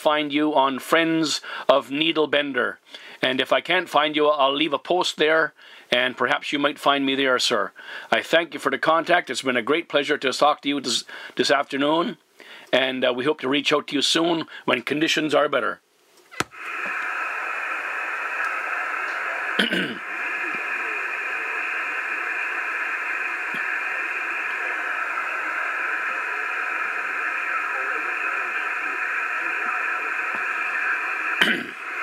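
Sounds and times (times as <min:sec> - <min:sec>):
radio static hiss: 0:16.3 - 0:32.0
static bursts: 0:16.3 - 0:32.0.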